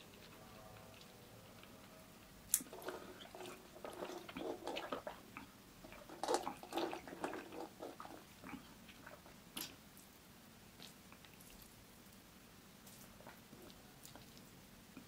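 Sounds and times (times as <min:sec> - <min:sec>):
person chewing: 0:02.5 - 0:09.8.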